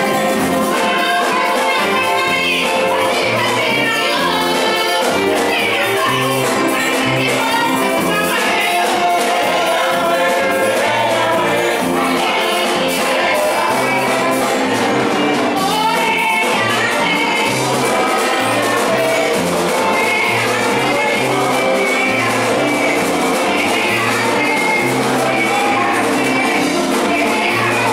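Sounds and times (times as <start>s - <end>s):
drum kit: 0.0s - 27.9s
keyboard: 0.0s - 27.9s
women singing together: 0.0s - 27.9s
bass line: 1.6s - 27.9s.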